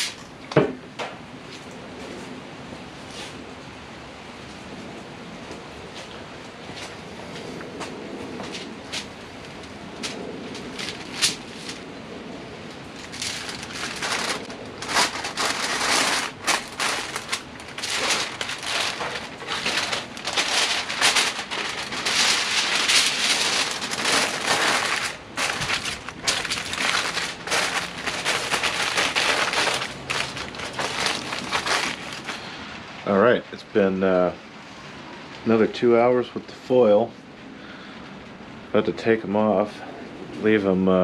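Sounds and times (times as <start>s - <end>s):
aluminium foil crinkling: 9.0s - 11.8s, 12.8s - 32.5s.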